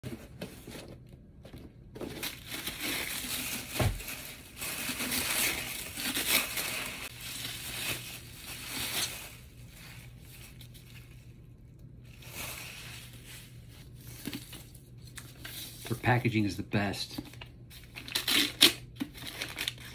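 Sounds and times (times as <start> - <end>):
bubble wrap crackling: 2.2 - 15.9.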